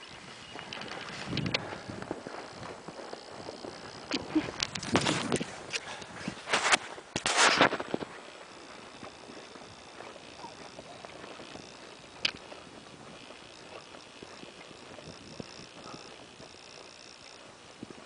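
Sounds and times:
dry grass rustling: 0:00.0 - 0:18.0.

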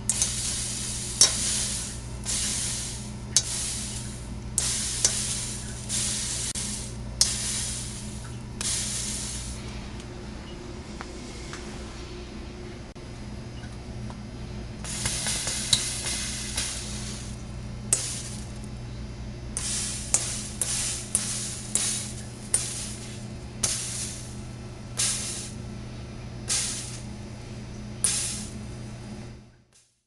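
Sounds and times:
sizzling hiss bursts: 0:00.0 - 0:09.7, 0:14.8 - 0:18.7, 0:19.5 - 0:24.4, 0:25.0 - 0:25.6, 0:26.5 - 0:27.1, 0:28.0 - 0:28.6
steady low hum: 0:00.0 - 0:29.7.

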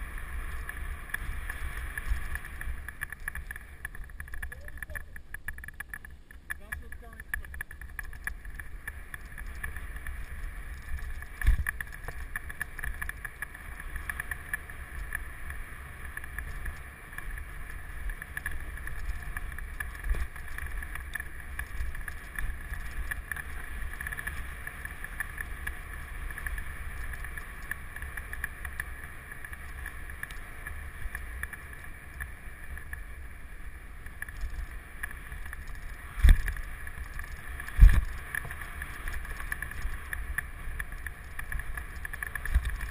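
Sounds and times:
bike tyres rumbling on dirt: 0:00.0 - 0:42.9
wind on microphone: 0:36.1 - 0:40.2.

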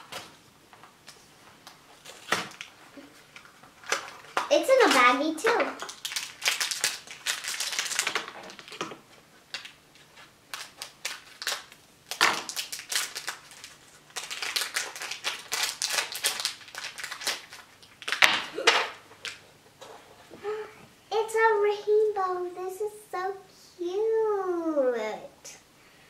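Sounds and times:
foil wrapper crinkling: 0:01.0 - 0:19.4.

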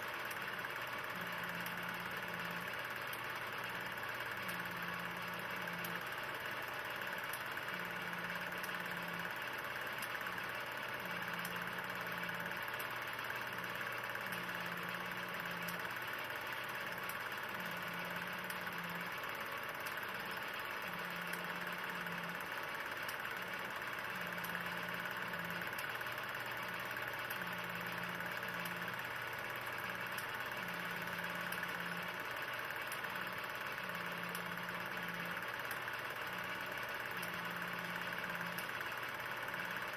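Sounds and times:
film projector whirring: 0:00.0 - 0:39.9.

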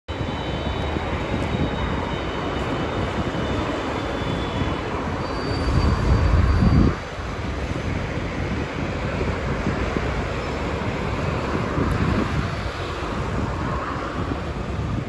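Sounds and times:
trolleybus rumble: 0:00.1 - 0:15.0.

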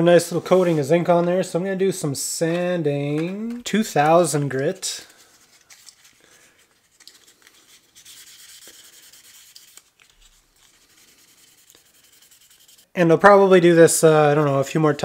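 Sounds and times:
sandpaper rubbing on metal: 0:07.6 - 0:12.9.

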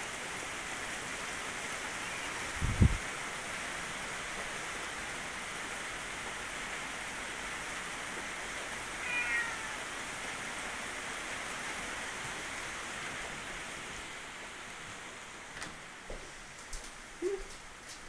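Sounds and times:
steady hiss: 0:00.0 - 0:18.0
cat meowing: 0:09.0 - 0:09.9.

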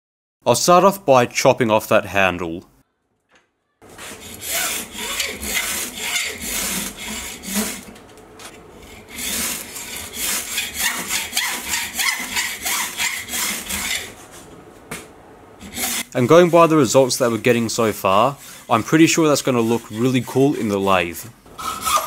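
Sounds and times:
hacksaw sawing metal rod: 0:04.0 - 0:07.9, 0:08.8 - 0:14.2, 0:15.6 - 0:21.0, 0:21.6 - 0:22.0.

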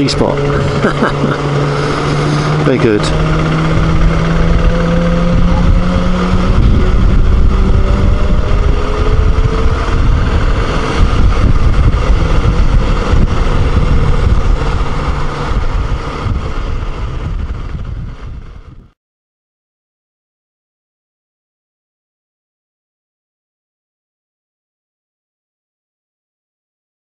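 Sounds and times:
motorcycle engine rumble: 0:00.0 - 0:19.0
wind rush on microphone: 0:00.0 - 0:19.0.

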